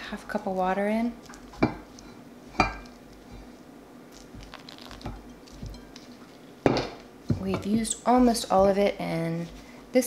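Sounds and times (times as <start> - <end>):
glass clinking: 4.5 - 6.8.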